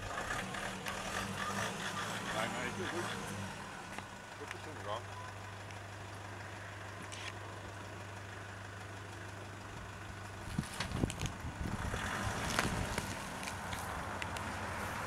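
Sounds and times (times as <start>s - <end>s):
truck engine rumbling: 0.0s - 15.0s.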